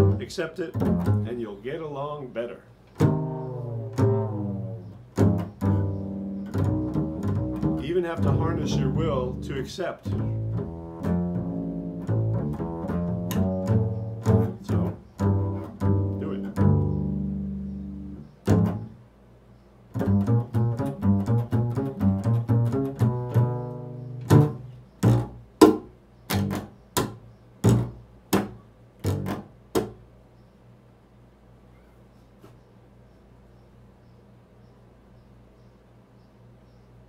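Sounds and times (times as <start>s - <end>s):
double bass plucked: 0.0s - 1.8s, 2.9s - 19.0s, 19.9s - 30.0s.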